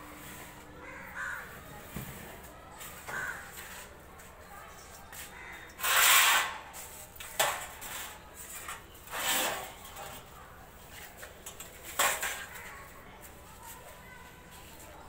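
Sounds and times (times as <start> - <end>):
metal trays scraping and rattling: 5.8 - 12.8.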